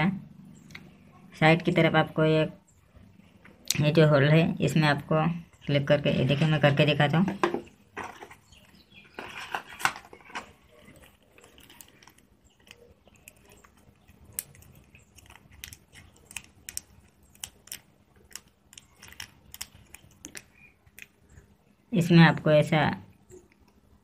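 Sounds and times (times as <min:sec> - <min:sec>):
plastic packet crinkling: 0:07.9 - 0:21.3.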